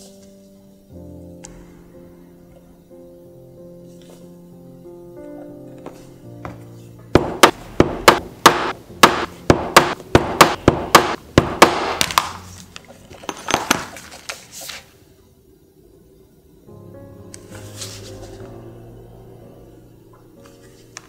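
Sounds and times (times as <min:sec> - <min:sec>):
mallet knocking on chisel: 0:07.2 - 0:12.1.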